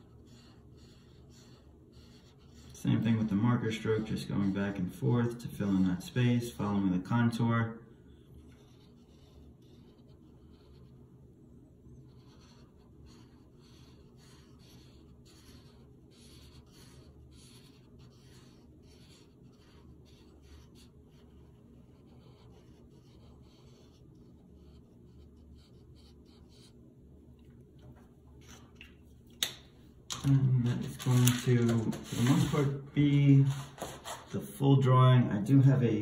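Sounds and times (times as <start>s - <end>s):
marker scratching on paper: 0.0s - 6.8s, 8.1s - 11.0s, 11.9s - 26.8s, 30.7s - 34.4s.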